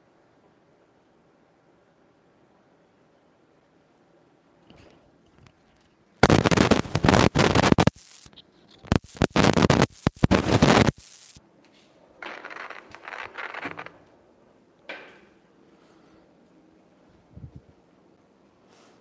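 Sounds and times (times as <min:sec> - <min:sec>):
scratching against a microphone: 0:06.2 - 0:11.4.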